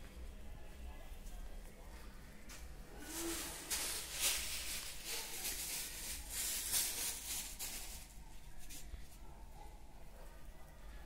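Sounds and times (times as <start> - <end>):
faint low hum: 0.0 - 11.0
rustling swishes: 3.0 - 8.1.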